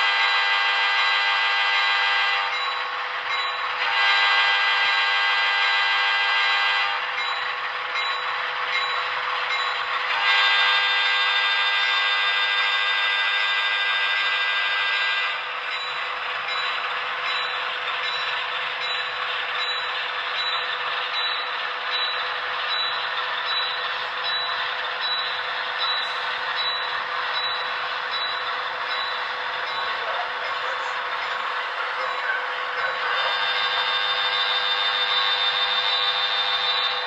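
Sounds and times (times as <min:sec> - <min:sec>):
hissing diesel engine running: 0:14.4 - 0:37.0.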